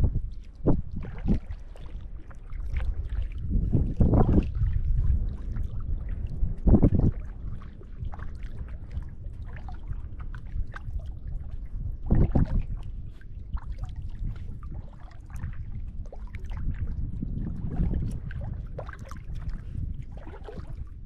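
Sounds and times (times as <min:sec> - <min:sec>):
low rumble: 0:00.0 - 0:01.6.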